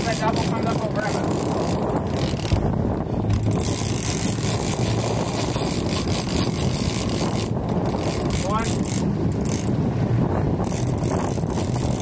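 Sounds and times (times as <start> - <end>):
boat engine running: 0.0 - 12.0
water noise: 0.0 - 12.0
wind: 0.0 - 12.0.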